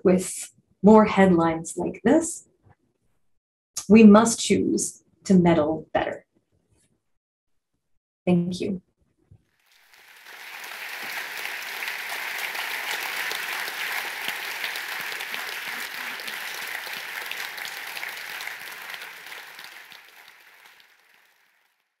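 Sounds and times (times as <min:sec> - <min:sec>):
applause: 0:09.6 - 0:22.0.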